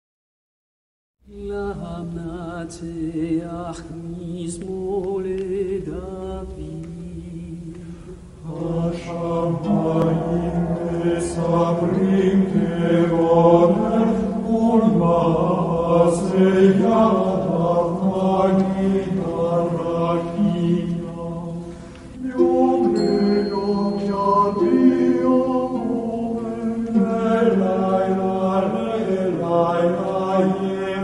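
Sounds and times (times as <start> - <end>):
voices singing slow chant: 1.3 - 31.0
low drone: 6.0 - 29.0.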